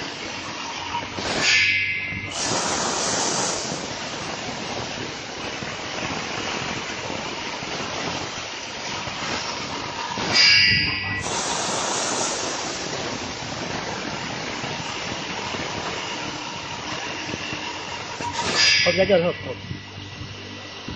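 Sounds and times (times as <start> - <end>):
high-pitched saw whine: 9.6 - 20.9
circular saw cutting wood: 17.8 - 20.6.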